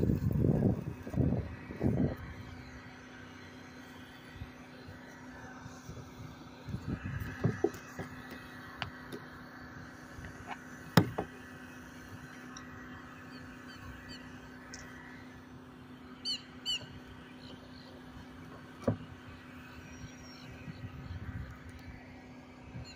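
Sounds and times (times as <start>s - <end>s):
steady low hum: 0.0s - 22.9s
seabirds calling: 6.5s - 21.6s
knocks against a kayak: 7.3s - 8.2s, 11.0s - 11.3s.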